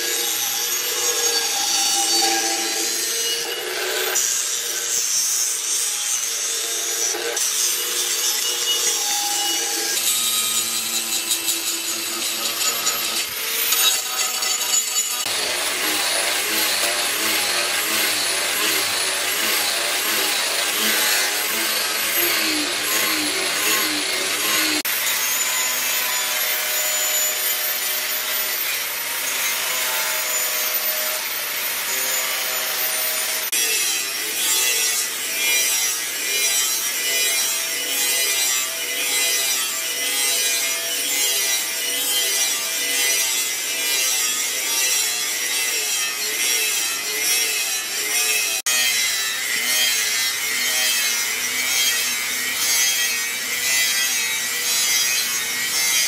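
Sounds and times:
angle grinder whining: 0.0 - 56.0
cut-off wheel slicing steel: 6.8 - 33.5.

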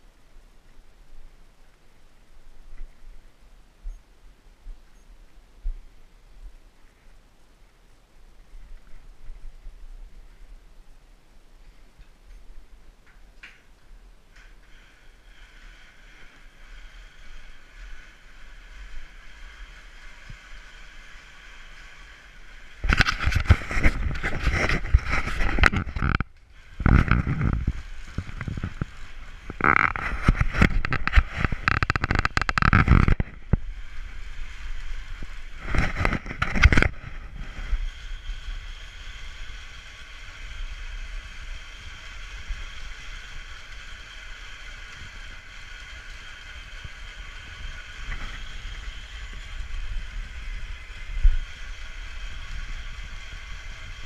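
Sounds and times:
grain mill grinding: 14.3 - 54.0.

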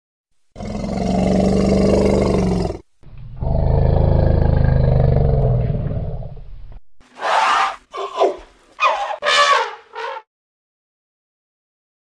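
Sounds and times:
elephant roaring: 0.6 - 6.4, 7.1 - 10.2.

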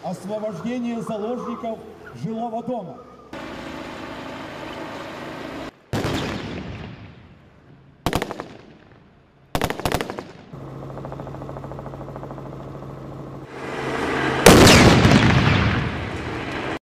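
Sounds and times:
automatic gunfire bursts: 8.1 - 8.7, 9.5 - 10.4
low hum: 10.3 - 16.8
loud gunshot bang: 14.4 - 16.1.

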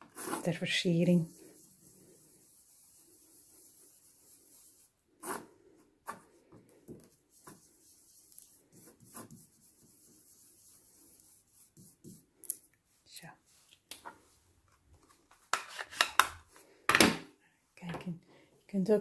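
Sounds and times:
brush scrubbing on paper: 0.0 - 6.4, 7.0 - 12.3.

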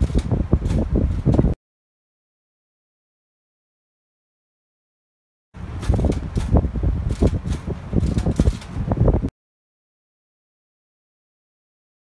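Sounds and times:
wind buffeting microphone: 0.0 - 1.6, 5.6 - 9.3
signal lamp shutter clicking: 5.8 - 8.8.

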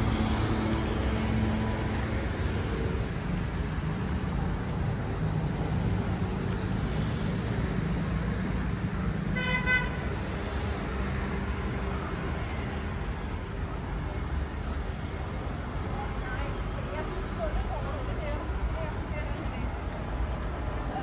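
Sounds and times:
road traffic passing: 0.0 - 21.0
vehicle horn honk: 9.4 - 10.0.

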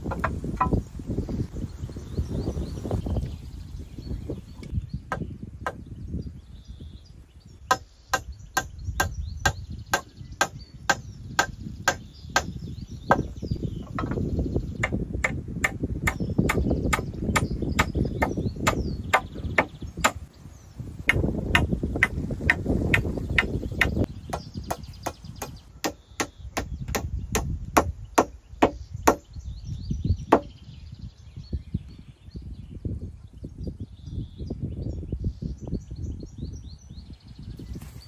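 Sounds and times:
hand tool chopping wood: 14.8 - 20.2, 21.1 - 29.2.

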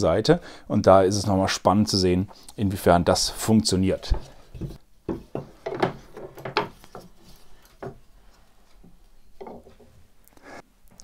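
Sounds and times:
brick knocking on wood: 4.6 - 6.8.

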